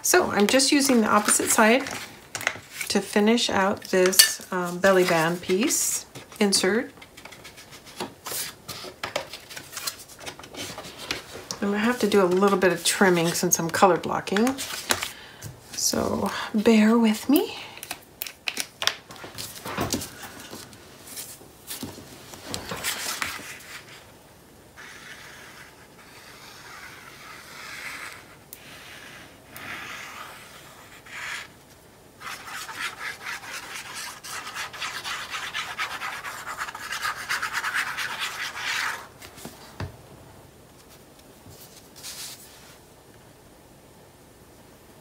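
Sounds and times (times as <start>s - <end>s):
paper rustling: 7.0s - 15.2s
scratchy rubbing on paper: 24.8s - 31.5s, 32.2s - 39.1s.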